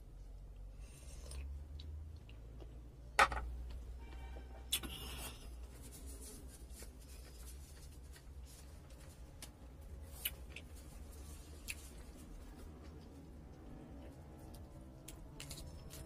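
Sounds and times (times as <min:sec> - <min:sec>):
paper tissue rustling: 0:05.6 - 0:09.4.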